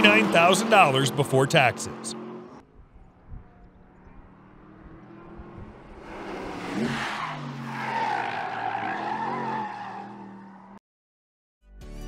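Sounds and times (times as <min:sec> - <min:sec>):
car engine revving: 0:00.0 - 0:10.8
tyres squealing: 0:06.8 - 0:10.3.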